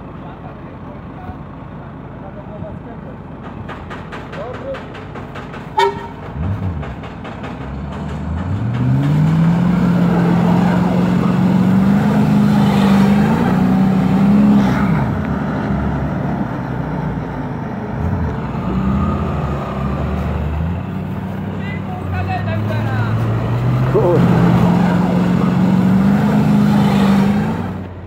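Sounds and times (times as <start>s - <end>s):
car engine revving at high revs: 5.8s - 16.6s, 22.2s - 28.0s.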